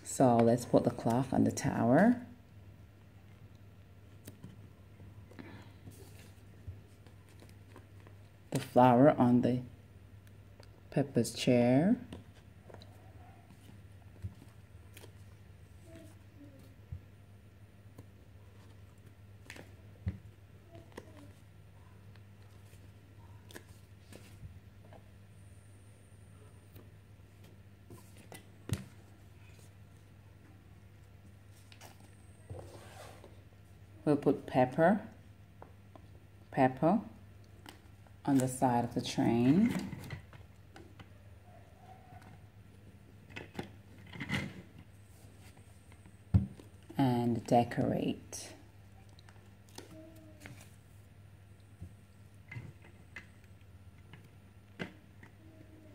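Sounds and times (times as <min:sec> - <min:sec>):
low steady hum: 0:00.0 - 0:55.9.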